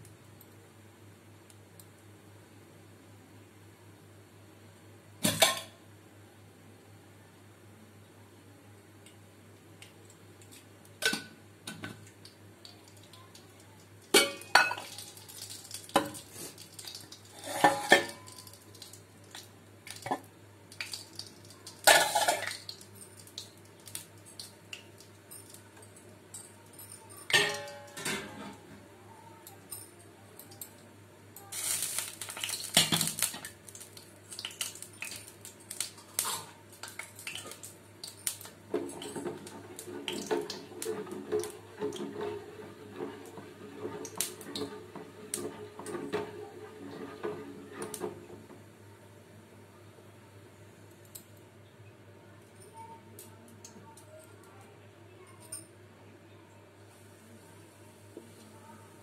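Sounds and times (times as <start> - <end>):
pots and spoons clattering: 14.1 - 15.1, 17.2 - 18.6, 21.9 - 22.6, 26.4 - 28.6, 36.9 - 48.3.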